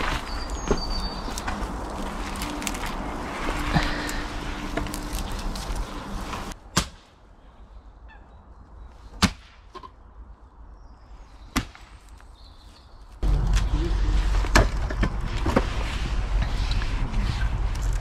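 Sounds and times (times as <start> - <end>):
dry twigs rustling and crackling: 0.0 - 6.6, 11.8 - 18.0.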